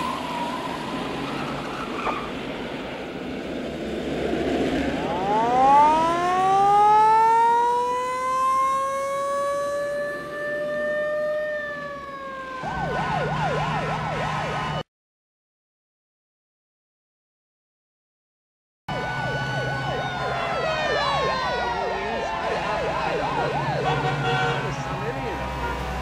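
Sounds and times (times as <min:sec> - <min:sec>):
emergency siren wailing and yelping: 0:00.0 - 0:02.5, 0:05.0 - 0:14.8, 0:18.9 - 0:26.0
street traffic: 0:00.0 - 0:14.8, 0:18.9 - 0:26.0.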